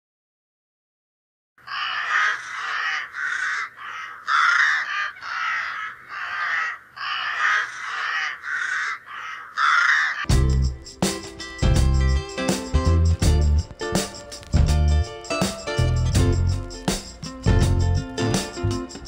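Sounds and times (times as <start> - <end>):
crows cawing: 1.6 - 10.3.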